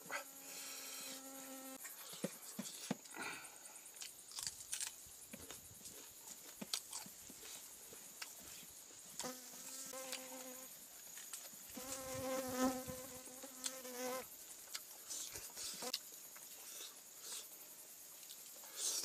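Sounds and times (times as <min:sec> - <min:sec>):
flying insect buzzing: 0:00.1 - 0:01.9, 0:09.2 - 0:10.8, 0:11.6 - 0:14.4.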